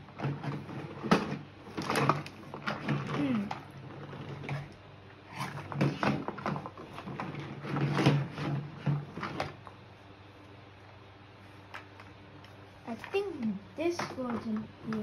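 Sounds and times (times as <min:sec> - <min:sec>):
plastic toy parts knocking and clicking: 0:13.0 - 0:15.0.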